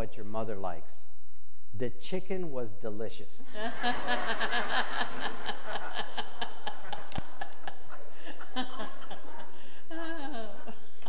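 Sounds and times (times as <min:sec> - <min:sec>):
people laughing: 0:03.5 - 0:11.0.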